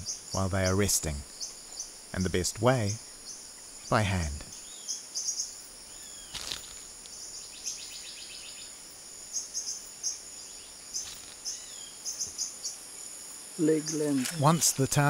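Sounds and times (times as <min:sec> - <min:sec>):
insects droning high-pitched: 0:00.0 - 0:15.0
short insect chirps: 0:00.0 - 0:15.0
brief rustle: 0:06.3 - 0:06.8, 0:11.0 - 0:11.5.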